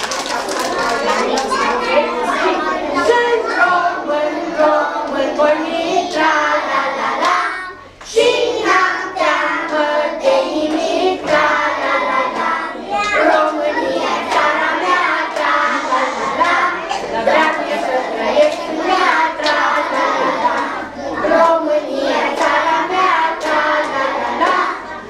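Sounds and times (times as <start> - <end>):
hand claps: 0.0 - 1.6, 19.4 - 19.8, 22.4 - 22.6, 23.4 - 24.7
children singing together: 0.0 - 25.0.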